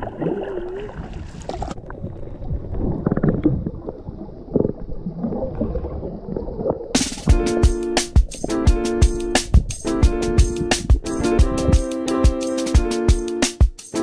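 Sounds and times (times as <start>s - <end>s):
water sloshing along hull: 0.0s - 7.0s
underwater gurgling and rushing: 0.0s - 7.4s, 8.3s - 11.7s.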